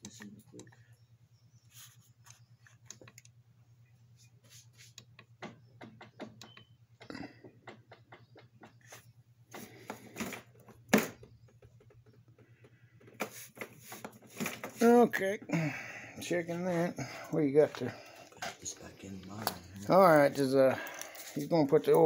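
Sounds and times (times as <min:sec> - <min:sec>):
faint low hum: 0:00.0 - 0:07.6, 0:08.2 - 0:22.0
light clicks and knocks: 0:05.0 - 0:09.0.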